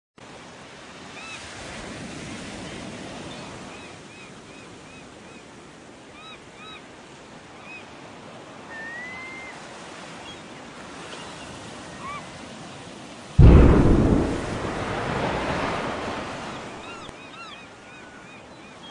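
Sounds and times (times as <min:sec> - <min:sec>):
ocean surf breaking: 0:13.4 - 0:17.2.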